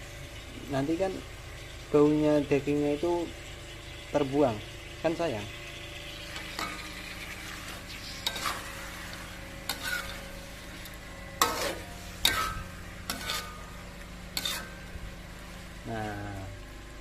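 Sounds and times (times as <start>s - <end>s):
frying sizzle: 0.0s - 17.0s
spatula scraping metal wok: 5.6s - 16.1s.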